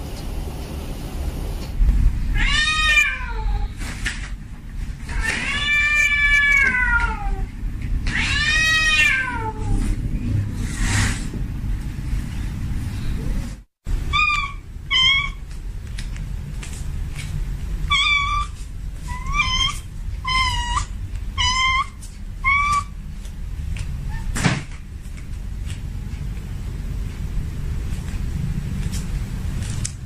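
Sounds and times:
steady low rumble: 0:00.0 - 0:05.2, 0:07.2 - 0:21.4, 0:24.8 - 0:30.0
cat meowing: 0:02.3 - 0:03.7, 0:05.1 - 0:09.8, 0:14.1 - 0:15.4, 0:17.9 - 0:22.9.

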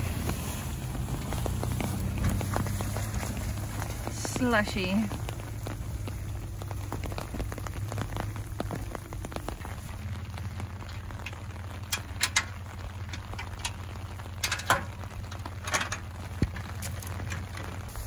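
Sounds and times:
metal clanks of trailer hitch: 0:15.6 - 0:16.1.

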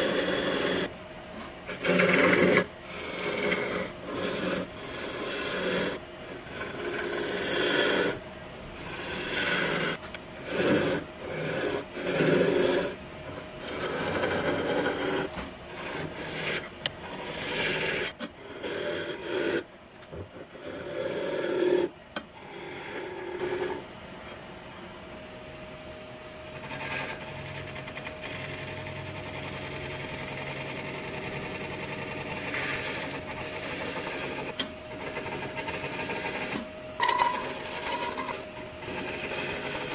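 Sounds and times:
gouge rasping on spinning wood: 0:00.0 - 0:00.9, 0:01.6 - 0:08.2, 0:08.8 - 0:19.7, 0:20.3 - 0:23.8, 0:26.6 - 0:39.9
wood lathe running: 0:00.0 - 0:00.9, 0:01.7 - 0:08.2, 0:08.8 - 0:19.6, 0:26.6 - 0:39.9.

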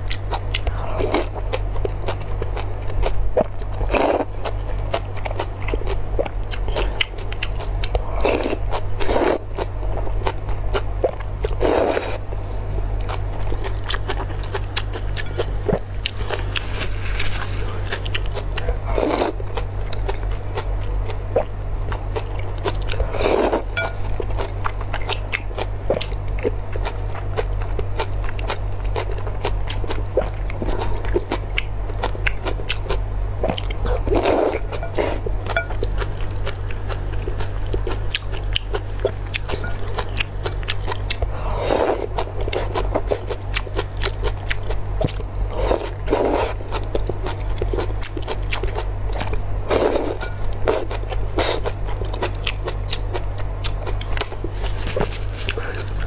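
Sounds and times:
low hum: 0:00.0 - 0:56.0
slurping noodles: 0:08.1 - 0:09.4, 0:11.6 - 0:12.2, 0:18.7 - 0:19.4, 0:23.0 - 0:23.7, 0:34.1 - 0:35.2, 0:41.4 - 0:43.2, 0:45.5 - 0:46.6, 0:49.7 - 0:50.8.

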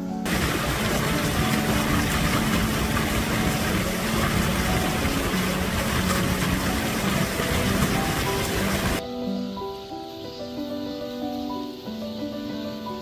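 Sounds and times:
mountain stream rushing: 0:00.3 - 0:09.0.

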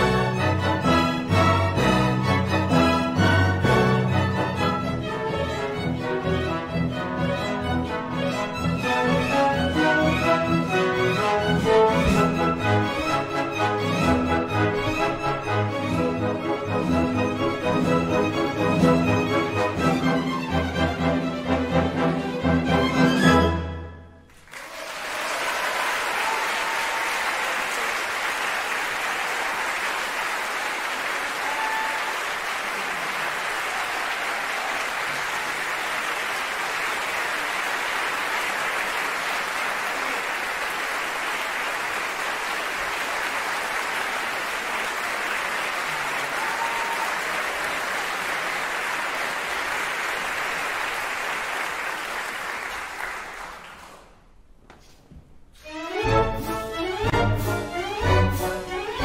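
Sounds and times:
audience applauding: 0:24.3 - 0:54.2.

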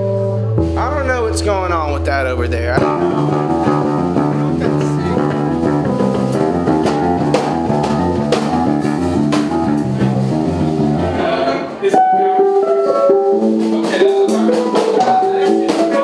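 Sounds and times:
bass guitar: 0:00.0 - 0:16.0
drum and cymbal beat: 0:02.8 - 0:10.6, 0:12.4 - 0:16.0
electric guitar: 0:02.8 - 0:16.0.

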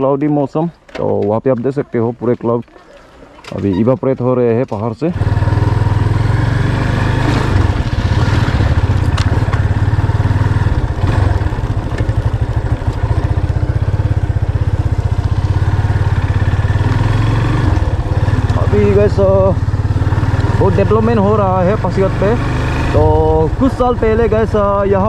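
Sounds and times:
motorcycle engine running: 0:05.1 - 0:25.0.

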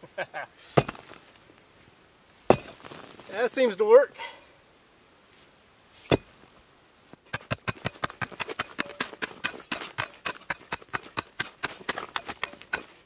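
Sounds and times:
pick striking rock: 0:00.8 - 0:01.2, 0:02.5 - 0:03.2, 0:06.1 - 0:06.3, 0:07.3 - 0:13.0.

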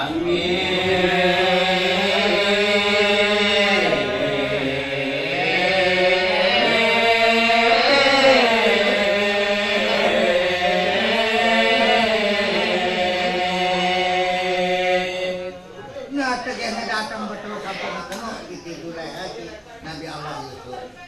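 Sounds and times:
man chanting unaccompanied: 0:00.0 - 0:15.5.

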